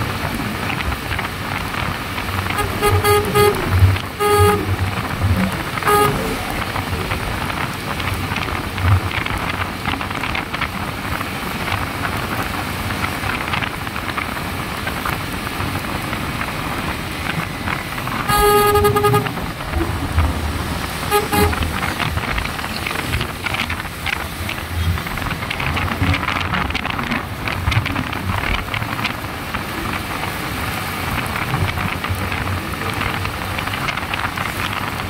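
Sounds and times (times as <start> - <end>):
tyre noise on wet road: 0.0 - 35.0
wind rush: 0.1 - 18.3
horn toots: 2.4 - 7.8, 18.1 - 23.6.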